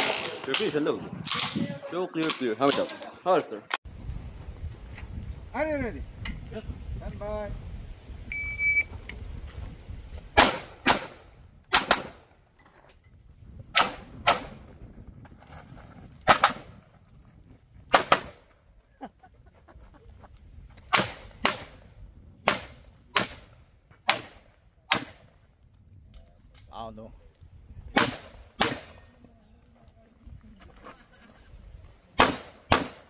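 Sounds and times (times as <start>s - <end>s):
shot timer beep: 8.3s - 8.9s
pistol shots: 10.4s - 12.2s, 27.9s - 29.0s, 32.2s - 33.0s.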